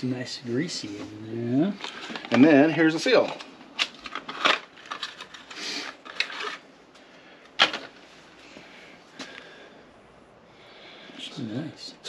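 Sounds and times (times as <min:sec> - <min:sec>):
parts handled in work gloves: 0:03.1 - 0:08.6.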